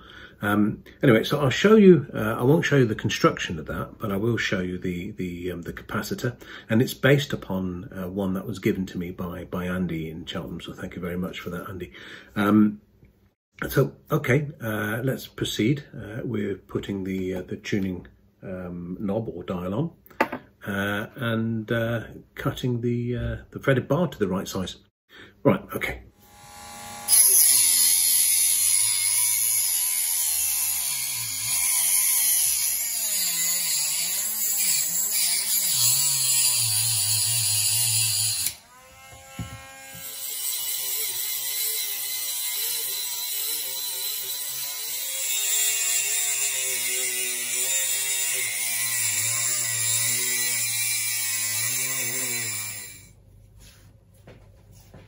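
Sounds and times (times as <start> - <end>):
rotary tool motor whine: 26.2 - 53.1.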